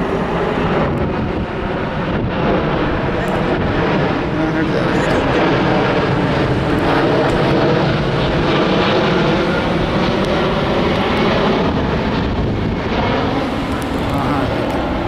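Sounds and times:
airplane engine rumble: 0:00.0 - 0:15.0.

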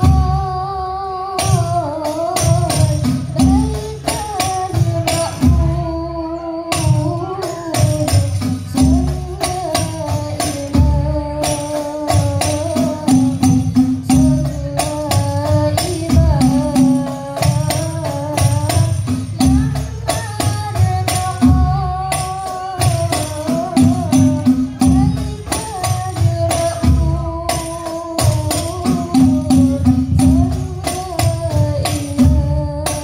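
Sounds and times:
frame drums: 0:00.0 - 0:33.0
women singing into microphones: 0:00.0 - 0:33.0.

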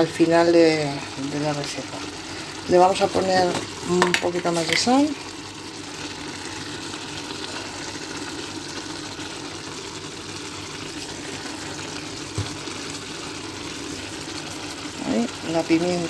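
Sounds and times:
sauce sizzling in a frying pan: 0:00.0 - 0:16.0.

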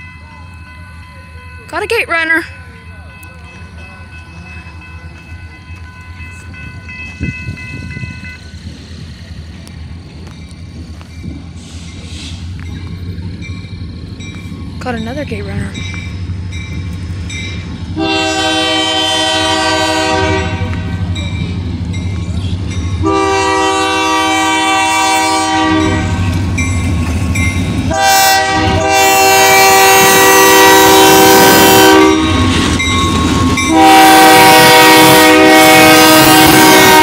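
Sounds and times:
locomotive rumbling: 0:00.0 - 0:37.0
wheels clacking on rail: 0:00.0 - 0:37.0
locomotive air horn blasts: 0:18.0 - 0:21.0, 0:23.0 - 0:26.2, 0:27.9 - 0:32.5, 0:33.7 - 0:37.0.

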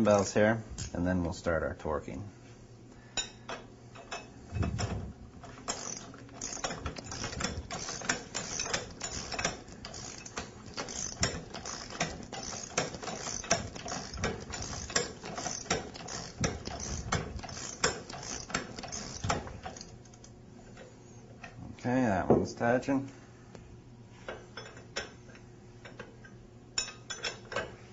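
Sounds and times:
socket ratchet clicking: 0:05.7 - 0:20.3.

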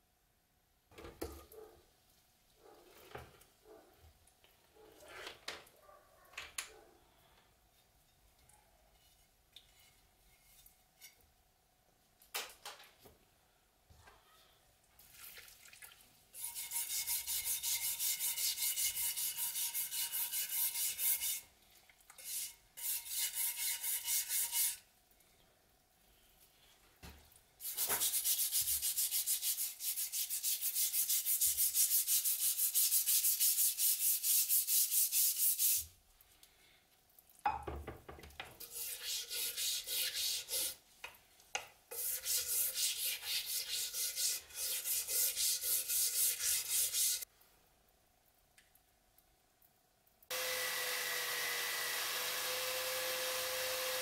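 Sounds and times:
small water splashes: 0:15.0 - 0:16.1
scrubbing a wet metal blade: 0:16.3 - 0:21.5, 0:22.1 - 0:24.9, 0:27.6 - 0:35.9, 0:38.6 - 0:40.8, 0:41.9 - 0:47.3.

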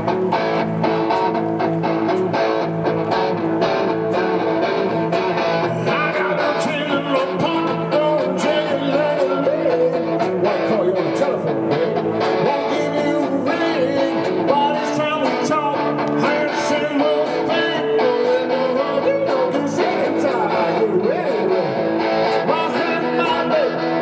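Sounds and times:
live rock band playing: 0:00.0 - 0:24.0
man singing: 0:05.6 - 0:24.0.

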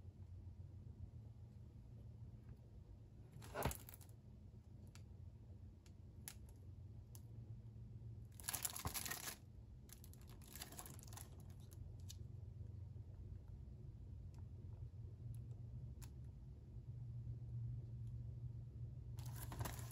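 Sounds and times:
plastic case handling noise: 0:03.4 - 0:04.0, 0:19.2 - 0:19.9
cellophane wrap crinkling: 0:08.4 - 0:11.8.

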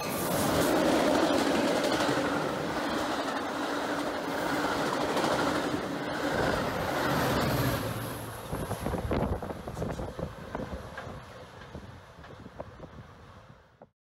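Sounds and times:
train wheels rattling on rail: 0:00.0 - 0:13.5
diesel locomotive passing: 0:00.0 - 0:13.8.

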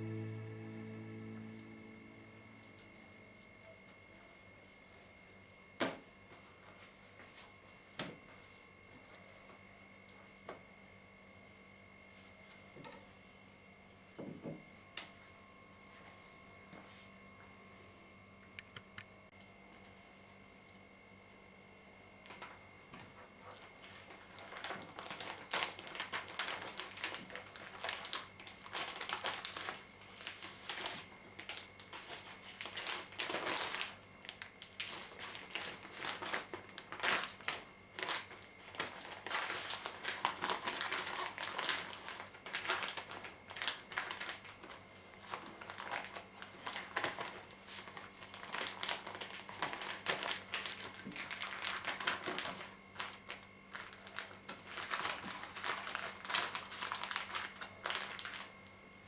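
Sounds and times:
plastic bag crinkling: 0:23.4 - 0:58.7.

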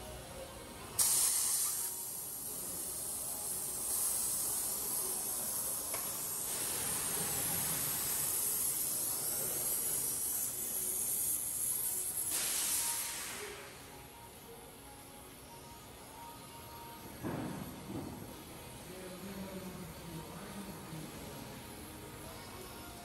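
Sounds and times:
torch flame hissing: 0:01.0 - 0:13.8.

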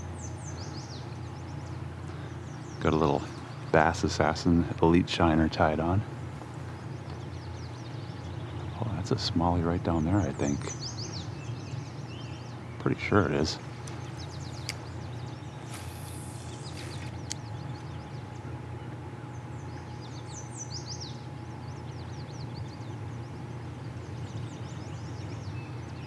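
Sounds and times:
low background rumble: 0:00.0 - 0:26.0
songbirds chirping and singing: 0:00.0 - 0:26.0
short hiss: 0:15.6 - 0:17.2.

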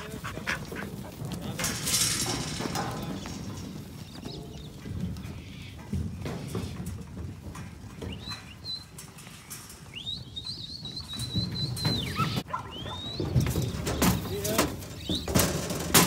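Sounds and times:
sheep shuffling and trampling: 0:00.0 - 0:16.0
knocks and clatter: 0:00.5 - 0:16.0.

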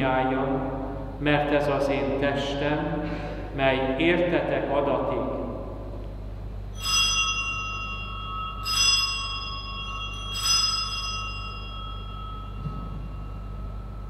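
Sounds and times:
altar bell ringing: 0:06.6 - 0:14.0.

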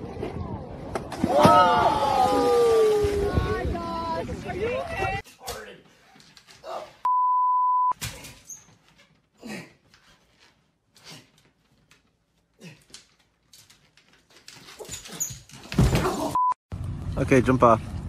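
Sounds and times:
censor bleep: 0:07.1 - 0:08.0.

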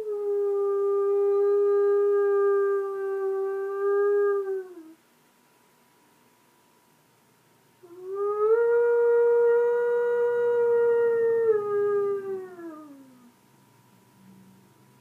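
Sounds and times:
person imitating wolf howl: 0:00.0 - 0:05.0, 0:07.8 - 0:13.3.

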